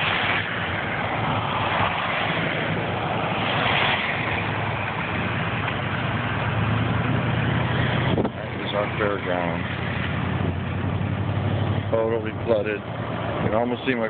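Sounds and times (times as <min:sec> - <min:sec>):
low engine hum: 0:00.0 - 0:14.0
tyre and road noise: 0:00.0 - 0:14.0.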